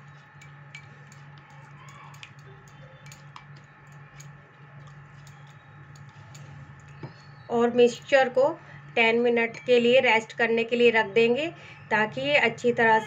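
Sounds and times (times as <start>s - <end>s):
steady low hum: 0.0s - 13.0s
spoon clicking against glass: 0.1s - 7.0s.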